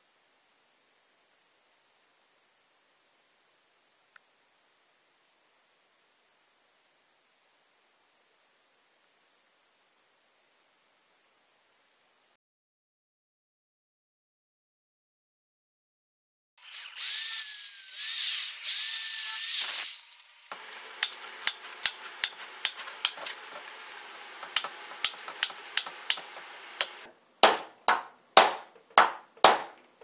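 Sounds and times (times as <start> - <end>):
small power tool running: 16.6 - 27.1
tin snips cutting wire mesh: 20.6 - 27.0.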